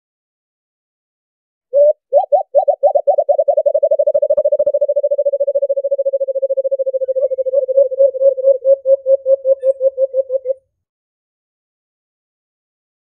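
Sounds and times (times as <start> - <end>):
dove cooing: 1.8 - 10.6.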